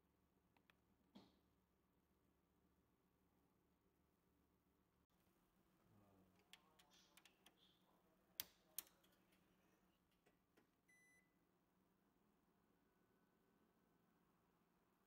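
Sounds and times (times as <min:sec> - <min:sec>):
short high beep: 0:10.9 - 0:11.3.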